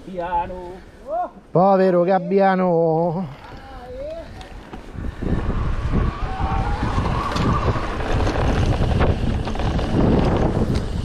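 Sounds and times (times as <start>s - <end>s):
bike rumbling over rough ground: 3.1s - 11.0s
wind on microphone: 3.5s - 11.0s.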